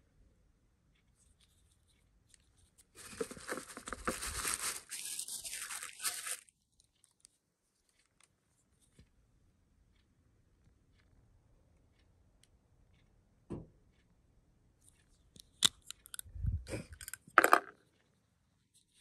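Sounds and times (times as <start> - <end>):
paper packaging rustling: 3.0 - 6.5.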